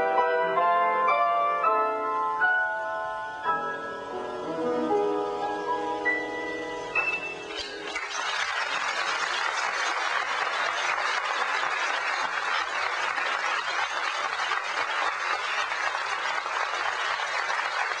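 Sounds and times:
audience applauding: 7.6 - 18.0.

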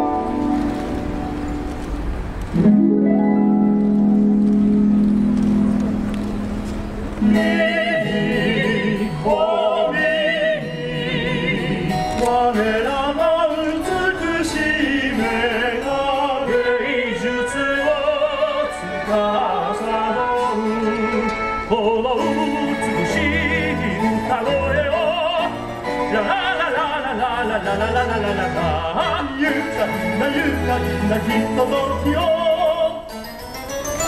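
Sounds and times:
orchestral accompaniment: 0.0 - 34.0
operatic voice singing with vibrato: 7.2 - 33.1.

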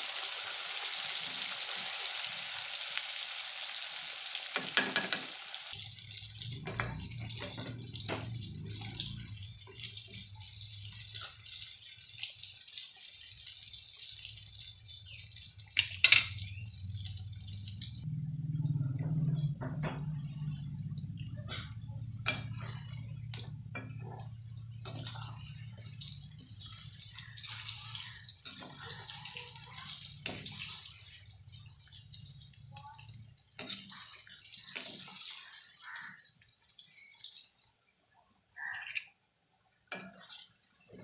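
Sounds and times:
hot oil sizzling and crackling: 0.0 - 18.1, 22.0 - 37.8
low hum: 16.2 - 26.8.

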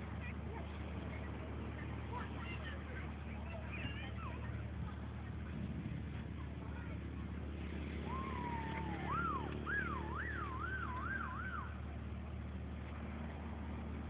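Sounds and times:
wavering whistle-like tone: 8.1 - 11.7.

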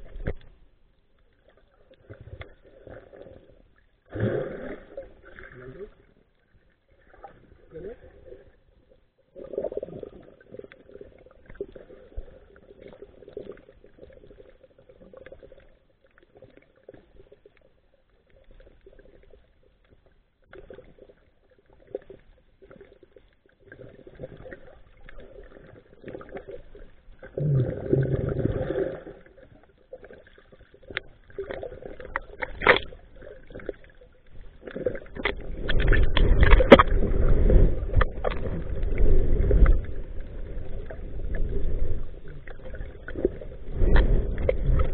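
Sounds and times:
underwater clicks and crackles: 0.0 - 44.9
water rushing: 30.9 - 44.9.

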